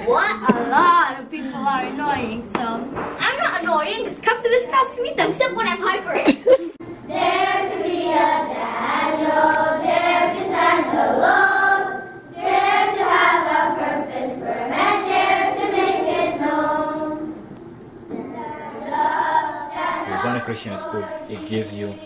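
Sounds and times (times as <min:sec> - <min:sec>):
children's choir singing: 0:07.1 - 0:17.5, 0:18.1 - 0:22.0.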